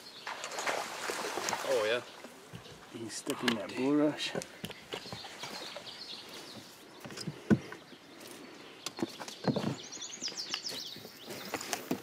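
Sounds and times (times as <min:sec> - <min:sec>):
bird chirping: 0:04.4 - 0:11.9.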